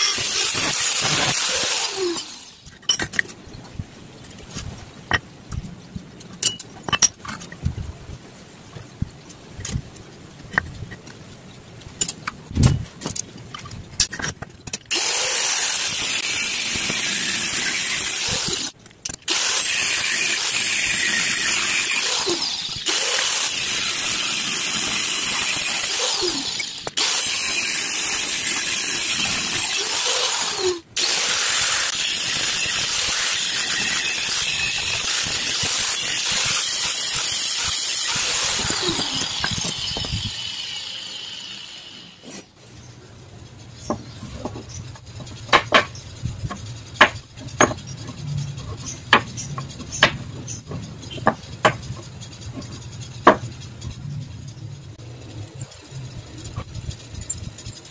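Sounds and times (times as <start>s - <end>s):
angle grinder cutting steel: 0.0s - 2.6s, 14.9s - 42.3s
metal pieces clicking and knocking: 0.0s - 3.4s, 6.2s - 7.7s, 11.8s - 15.0s, 17.2s - 19.6s, 43.8s - 54.2s.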